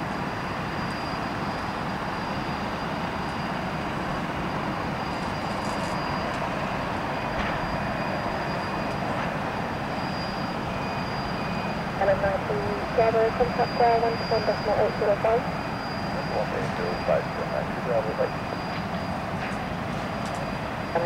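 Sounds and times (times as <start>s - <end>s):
jet engines rumbling and hissing: 0.0s - 21.0s.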